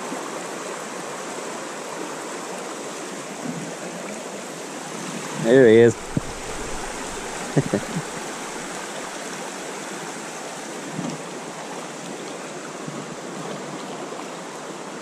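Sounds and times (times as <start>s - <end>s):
stream rushing: 0.0s - 15.0s
fish splashing: 5.9s - 8.8s.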